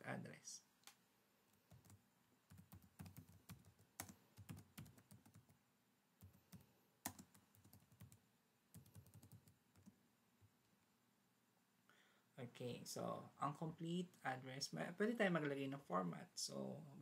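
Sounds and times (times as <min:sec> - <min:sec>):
faint keyboard typing: 0:00.8 - 0:05.6, 0:06.2 - 0:10.7.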